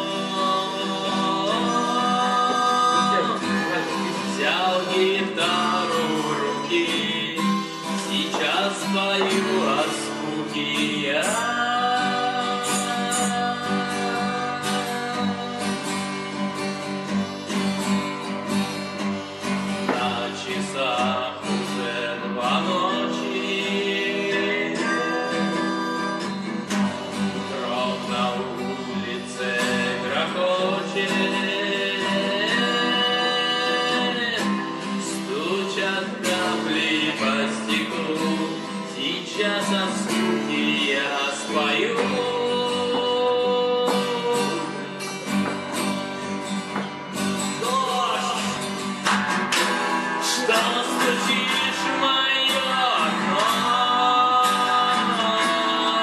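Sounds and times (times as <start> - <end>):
harmonica playing: 0.0 - 8.3, 22.8 - 29.1
strummed acoustic guitar: 0.0 - 56.0.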